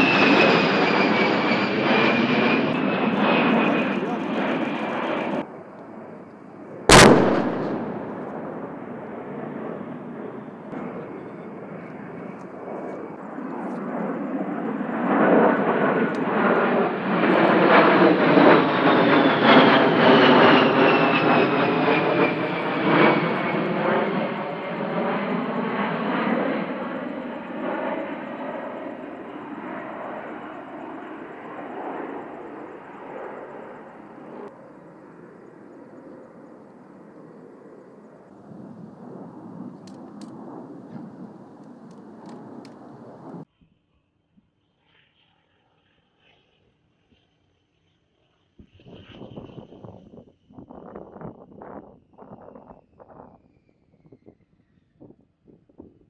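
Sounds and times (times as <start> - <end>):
jet aircraft passing overhead: 0.0 - 56.0
sharp bang: 6.9 - 8.7.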